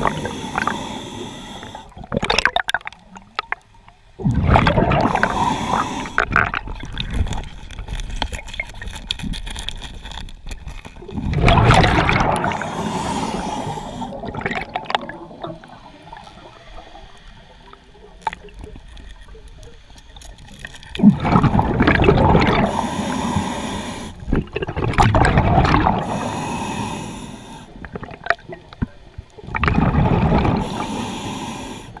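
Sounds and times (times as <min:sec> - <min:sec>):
diver breathing underwater: 0:00.0 - 0:02.1, 0:04.3 - 0:07.5, 0:11.2 - 0:17.9, 0:21.1 - 0:28.1, 0:29.6 - 0:32.0
bubbles gurgling: 0:01.9 - 0:07.6, 0:11.0 - 0:17.0, 0:20.9 - 0:22.9, 0:24.3 - 0:26.2, 0:27.8 - 0:30.8.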